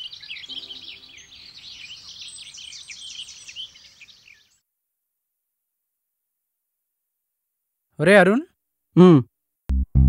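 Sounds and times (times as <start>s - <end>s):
small birds chirping: 0.0s - 4.6s.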